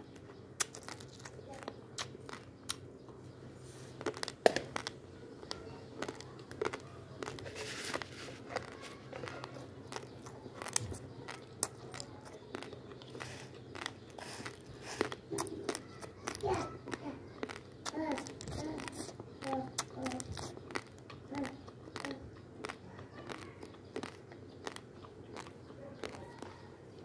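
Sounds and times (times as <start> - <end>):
rice grains rustling: 7.2 - 9.3, 13.1 - 15.2.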